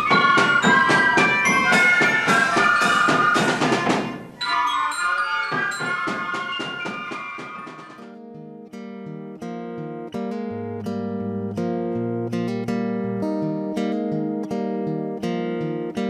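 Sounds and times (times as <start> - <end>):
drum strikes: 0.0 - 4.5, 5.4 - 8.1
fife melody: 0.0 - 15.9.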